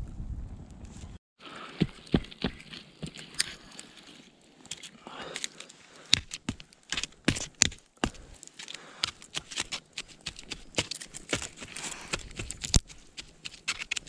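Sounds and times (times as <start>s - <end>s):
rustling of dry debris: 0.8s - 14.0s
dry sticks cracking: 1.8s - 14.0s.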